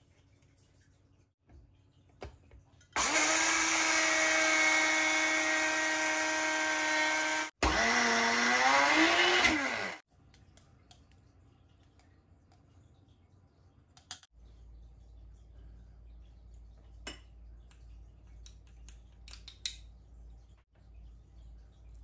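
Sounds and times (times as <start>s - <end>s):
electric mill grinding seeds: 3.0s - 10.0s.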